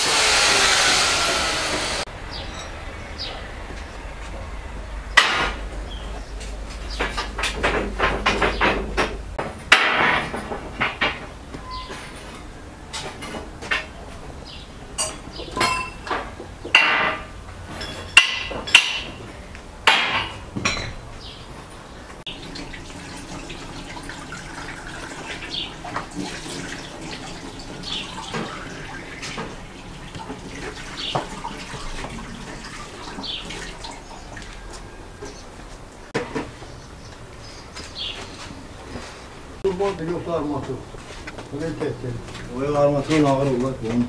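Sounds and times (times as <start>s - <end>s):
birds chirping: 1.2s - 9.2s, 13.9s - 17.5s, 20.7s - 44.0s
kitchen things knocking on a table: 19.9s - 21.0s.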